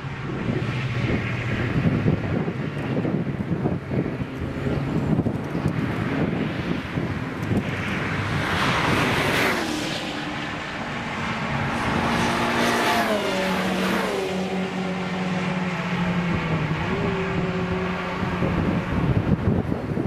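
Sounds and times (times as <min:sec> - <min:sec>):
race car passing by: 0:06.0 - 0:20.0.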